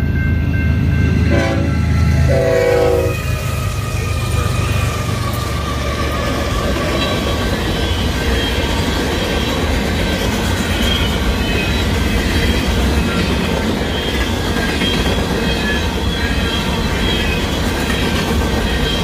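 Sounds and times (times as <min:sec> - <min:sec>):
freight train rumble and clatter: 0:00.0 - 0:19.0
high-pitched wheel squeals: 0:01.8 - 0:09.6, 0:10.6 - 0:19.0.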